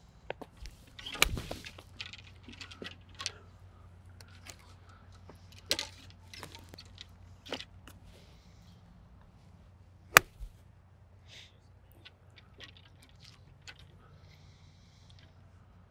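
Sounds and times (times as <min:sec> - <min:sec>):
golf clubs clicking and rattling: 0:00.5 - 0:08.1, 0:10.2 - 0:10.5, 0:12.0 - 0:14.0.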